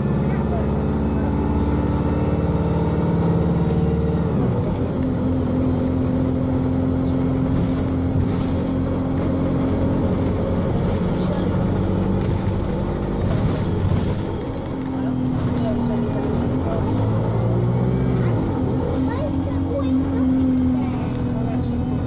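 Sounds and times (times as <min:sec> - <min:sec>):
bus diesel engine running hard: 0:00.0 - 0:22.0.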